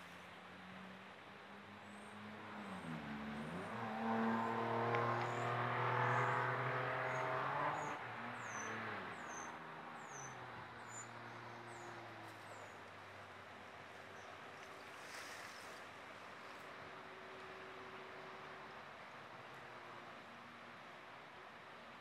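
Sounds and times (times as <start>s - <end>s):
vehicle engine passing by: 2.0s - 9.6s.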